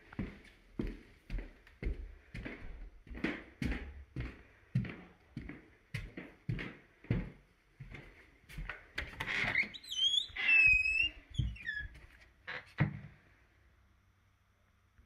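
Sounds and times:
footsteps on carpet: 0.0 - 9.2
door hinges squeaking: 9.2 - 12.8.

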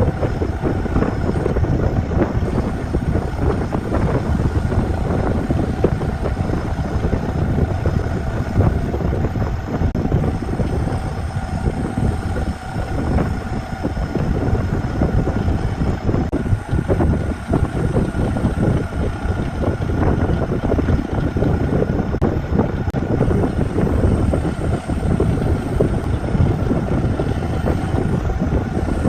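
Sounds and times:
faint steady hum: 0.0 - 29.0
wood lathe running: 0.0 - 29.0.

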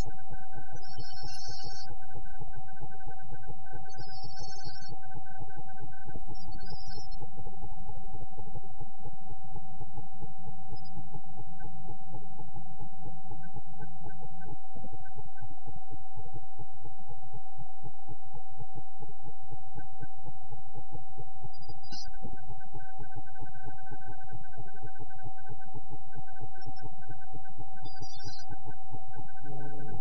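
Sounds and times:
steady electronic tone: 0.0 - 7.4.

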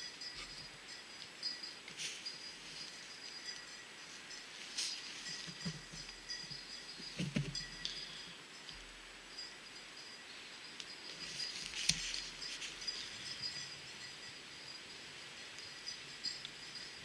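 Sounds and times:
faint high hiss and whine: 0.0 - 17.0
soft rustles and knocks: 4.6 - 6.4, 7.0 - 7.9, 11.1 - 13.2.

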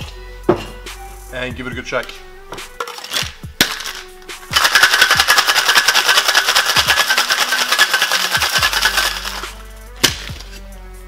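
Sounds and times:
ice rattling in cocktail shaker: 2.8 - 9.6.

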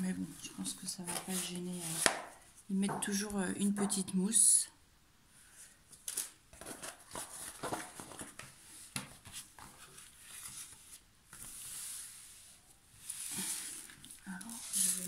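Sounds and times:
packaging rustling and crackling: 5.9 - 8.6
hands sliding across packaging: 9.2 - 15.0.

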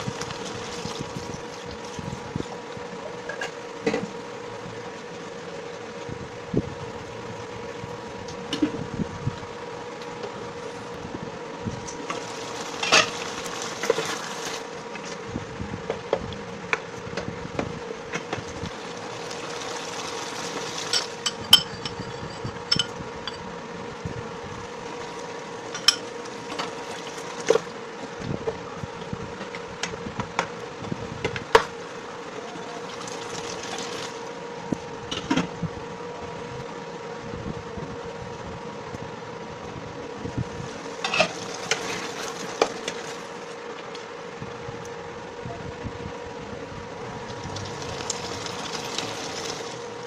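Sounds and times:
electric cooktop hum: 0.0 - 50.0
metal spoon clinking on pot: 21.0 - 23.4.

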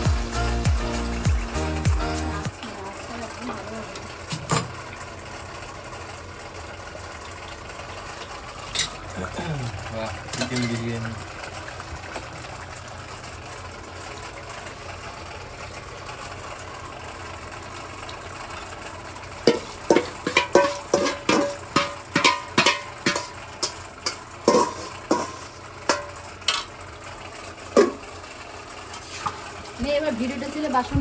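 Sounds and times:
metal spoon scraping metal bowl: 19.5 - 26.1.

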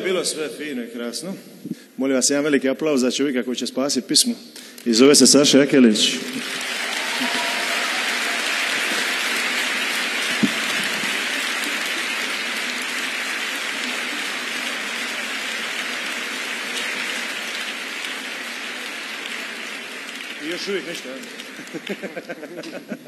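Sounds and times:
audience applauding: 6.0 - 22.8.

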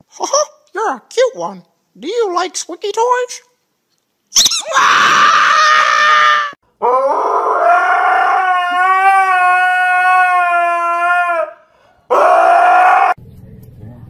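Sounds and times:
dog howling: 4.6 - 13.2.

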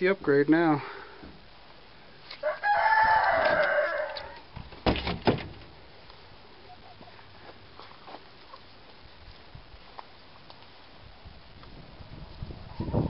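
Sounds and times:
rooster crowing: 2.4 - 4.4.

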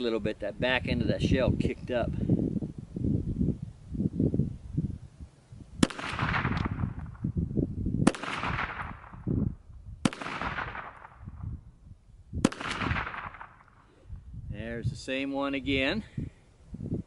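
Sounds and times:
pistol shots echoing: 5.8 - 7.0, 8.1 - 9.2, 10.0 - 11.2, 12.4 - 13.8.

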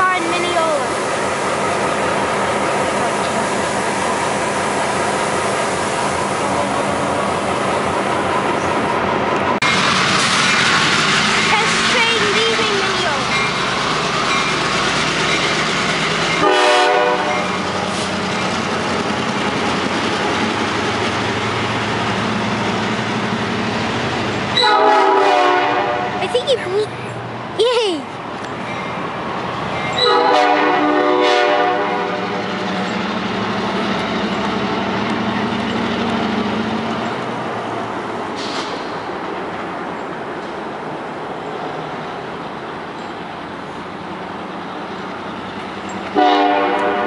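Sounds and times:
train cars clattering over rails: 0.0 - 25.2
diesel locomotive running: 0.0 - 47.0
locomotive horn blast: 16.4 - 17.6, 24.6 - 26.2, 30.0 - 32.4, 46.2 - 47.0.

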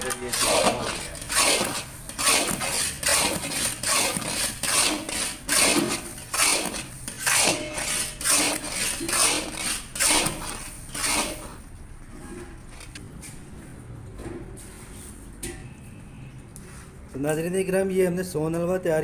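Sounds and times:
metal spatula scraping a pan: 0.0 - 11.6.

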